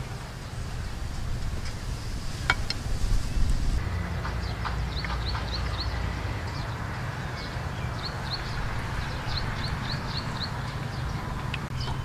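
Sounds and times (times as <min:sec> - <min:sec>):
background hiss: 0:00.0 - 0:03.9.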